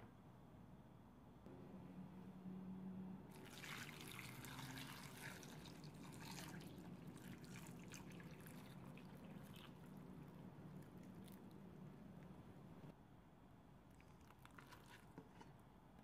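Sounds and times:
water pouring into bowl: 3.3s - 11.5s.

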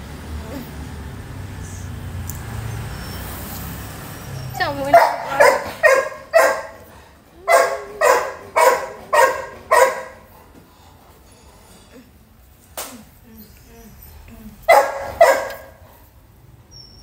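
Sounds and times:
puppy yelping: 2.8s - 10.3s, 13.6s - 15.8s
faint puppy whine: 12.9s - 14.7s.

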